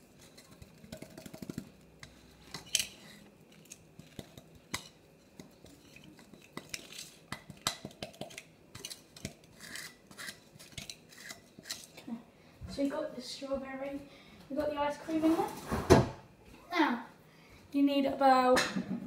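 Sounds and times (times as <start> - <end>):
spoon scraping blender cup: 4.0 - 12.0.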